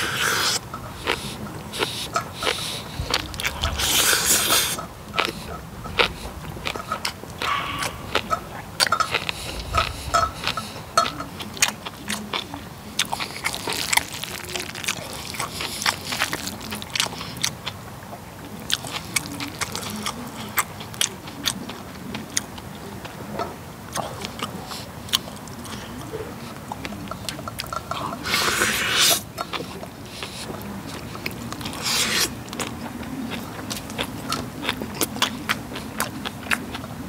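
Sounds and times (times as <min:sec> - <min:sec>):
rushing mouth noise: 0:00.0 - 0:11.2, 0:28.0 - 0:29.3, 0:31.7 - 0:32.5
close chewing and mouth sounds: 0:00.0 - 0:37.0.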